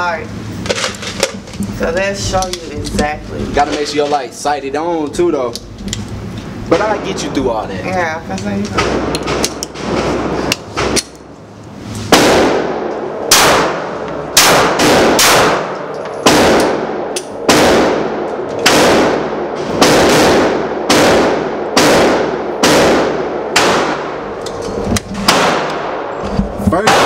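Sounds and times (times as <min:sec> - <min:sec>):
pistol shots echoing indoors: 0:12.1 - 0:24.4, 0:25.2 - 0:26.2.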